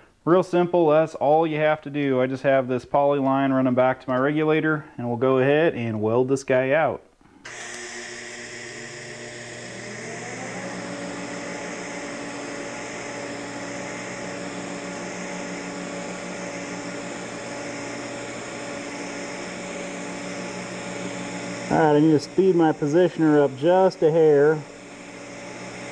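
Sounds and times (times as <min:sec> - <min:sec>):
motor humming: 0:07.4 - 0:25.9
welding arc hissing: 0:07.5 - 0:25.9.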